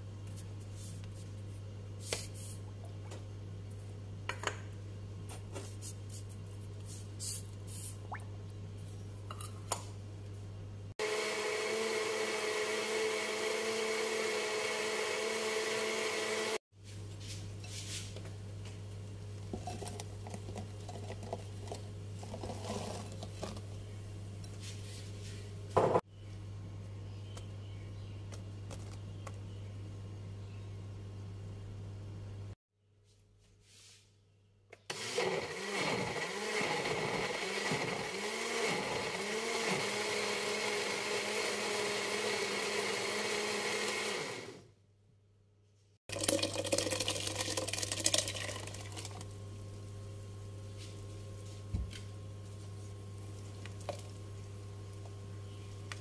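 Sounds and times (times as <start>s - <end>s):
electric blender running: 11.0s - 16.6s, 34.9s - 44.7s.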